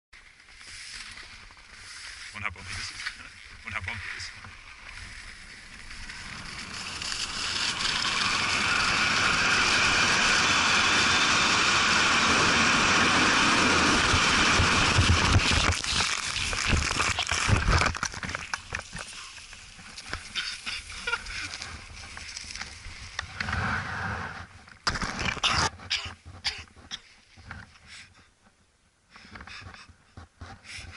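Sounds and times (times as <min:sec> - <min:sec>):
thumps and scraping on snow: 0:00.2 - 0:28.0
wind over microphone: 0:05.6 - 0:18.0.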